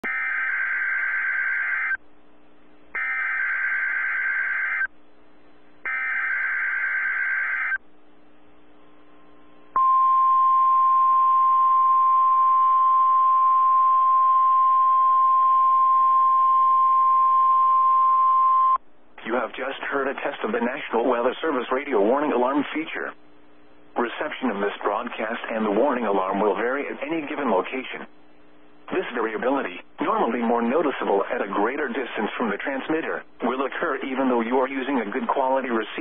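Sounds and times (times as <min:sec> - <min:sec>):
long steady alarm tone: 0:00.0 - 0:02.0, 0:02.9 - 0:04.9, 0:05.8 - 0:07.8, 0:09.2 - 0:18.8
radio hiss: 0:19.2 - 0:36.0.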